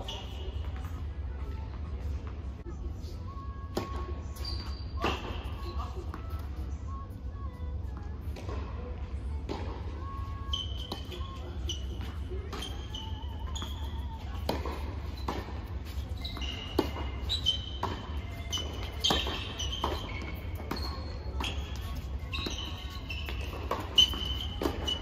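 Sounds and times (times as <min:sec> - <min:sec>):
sneakers squeaking on court: 0:00.0 - 0:02.5, 0:03.8 - 0:06.7, 0:09.5 - 0:25.0
ball bouncing in a hall: 0:00.0 - 0:25.0
steady low hum: 0:00.0 - 0:25.0
racket striking tennis ball: 0:14.4 - 0:15.6, 0:16.3 - 0:25.0.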